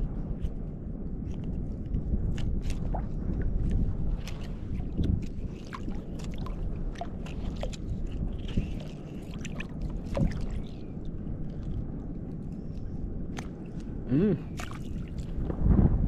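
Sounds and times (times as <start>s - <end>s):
sea water sloshing and lapping: 0.1s - 15.7s
small splashes and drips: 2.3s - 12.8s, 14.5s - 15.4s.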